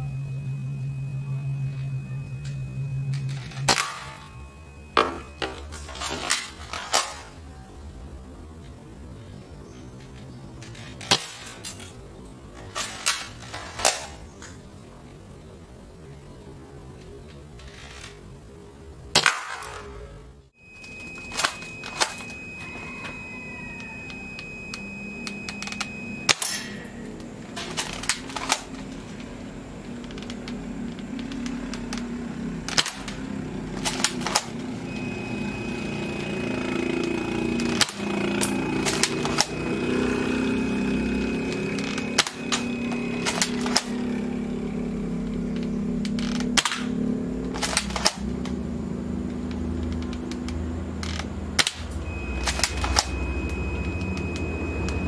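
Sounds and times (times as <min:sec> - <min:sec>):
steady low hum: 0:00.0 - 0:55.0
airsoft rifle shots snapping: 0:19.2 - 0:19.8, 0:46.6 - 0:46.9.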